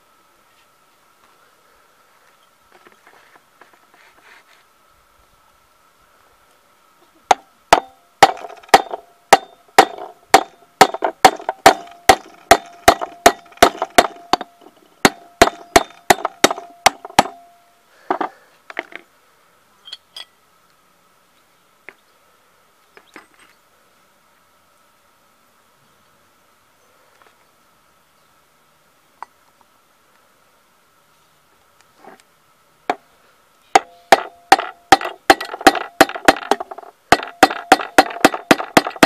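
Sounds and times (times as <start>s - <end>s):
hammer striking steel drift: 7.3s - 17.6s, 33.8s - 39.0s.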